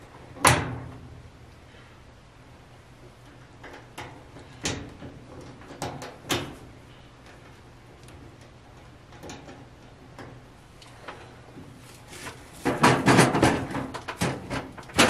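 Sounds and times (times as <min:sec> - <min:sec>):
metal clicks and knocks: 0:07.2 - 0:10.4, 0:12.6 - 0:15.0.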